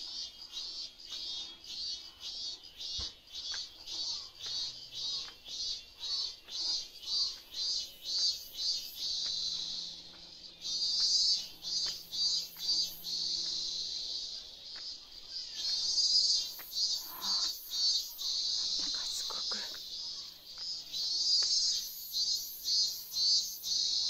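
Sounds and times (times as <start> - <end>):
cicadas singing: 0.0 - 24.0.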